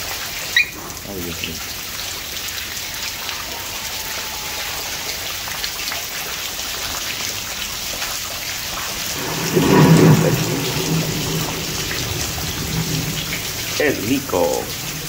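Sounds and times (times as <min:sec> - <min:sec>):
heavy rain downpour: 0:00.0 - 0:15.0
low rumble: 0:09.0 - 0:15.0.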